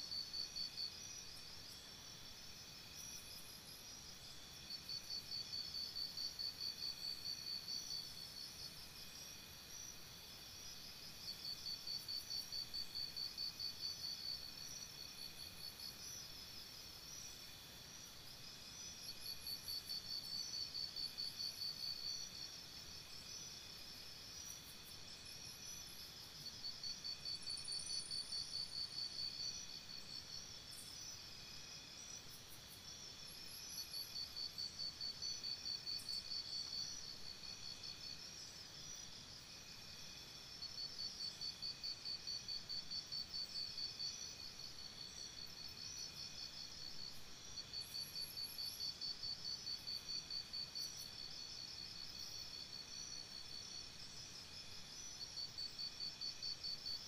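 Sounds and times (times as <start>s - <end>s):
crickets chirping: 0.0s - 57.0s
high insect drone: 0.0s - 57.0s.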